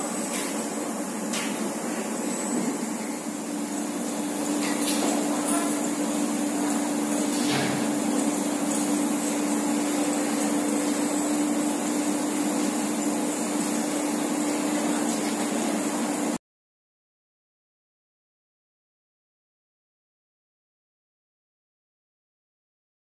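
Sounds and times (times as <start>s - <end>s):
low machine hum: 0.0s - 16.4s
machine line hissing: 0.0s - 16.4s.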